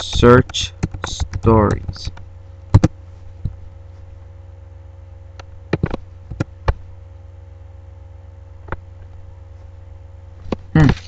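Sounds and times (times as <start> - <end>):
low electrical hum: 0.0 - 11.0
keyboard and mouse clicks: 5.7 - 6.8.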